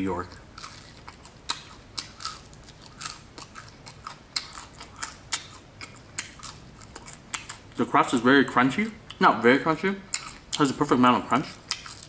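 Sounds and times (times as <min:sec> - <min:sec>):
person chewing crunchy crust: 0:00.0 - 0:07.8, 0:10.1 - 0:10.8, 0:11.4 - 0:12.0.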